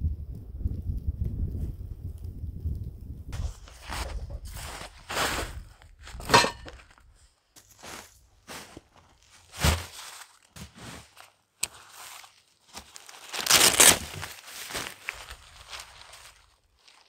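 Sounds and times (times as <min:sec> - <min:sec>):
boots crunching in snow: 0:03.4 - 0:07.0, 0:07.6 - 0:17.0
tent fabric rustling: 0:03.4 - 0:07.0, 0:07.6 - 0:17.0.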